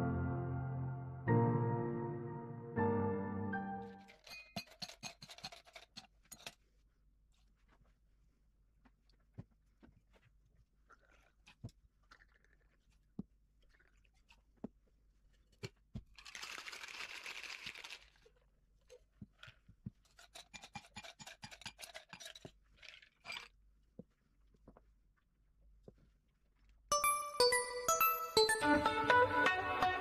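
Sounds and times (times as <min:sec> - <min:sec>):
cocktail shaker shaken with ice: 0:04.0 - 0:06.6, 0:16.2 - 0:18.4, 0:20.0 - 0:23.5
ice clinking against glass: 0:04.0 - 0:06.6
metal bar tools clinking: 0:04.0 - 0:06.6.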